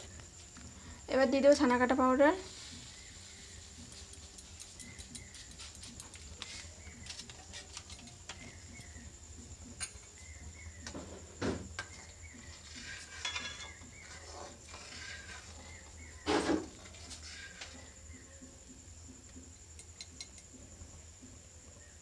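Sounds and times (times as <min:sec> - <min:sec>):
metal spoon scraping a wok: 0:12.5 - 0:17.8.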